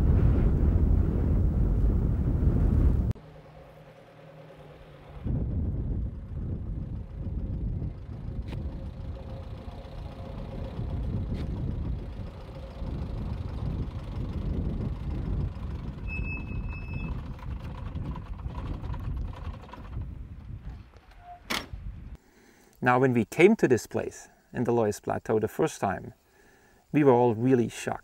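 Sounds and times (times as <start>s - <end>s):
jeep engine rumbling: 2.8s - 21.0s
short high steady tone: 16.0s - 17.1s.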